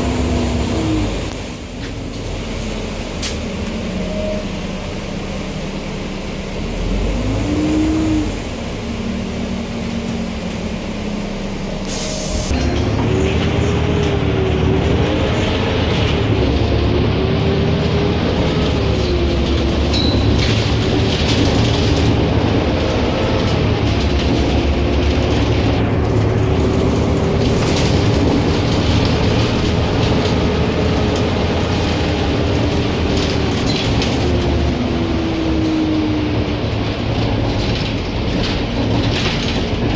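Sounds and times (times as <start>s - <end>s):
bus diesel engine rumble and whine: 0.0s - 39.9s
road noise: 0.0s - 39.9s
light rattles from bus body: 18.2s - 35.8s, 36.4s - 39.9s.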